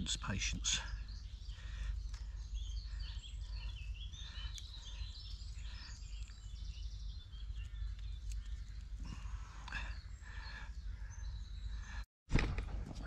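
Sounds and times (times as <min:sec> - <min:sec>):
bird trill: 0:00.0 - 0:12.0
songbirds chirping: 0:00.0 - 0:12.1.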